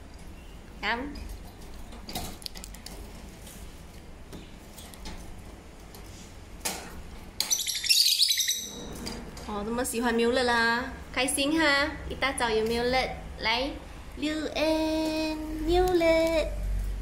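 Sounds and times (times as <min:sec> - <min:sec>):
lovebirds chirping: 0:07.4 - 0:09.0.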